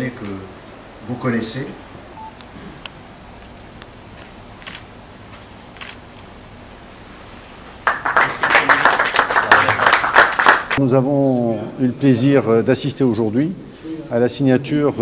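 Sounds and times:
audience applause: 7.8s - 10.8s.

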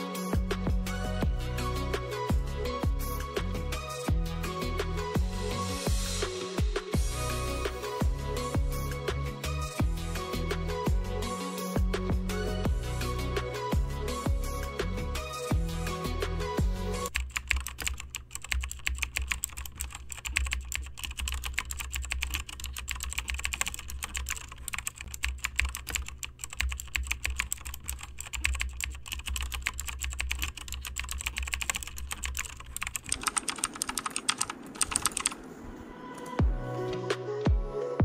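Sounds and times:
fast typing on laptop keyboard: 17.1s - 35.4s.

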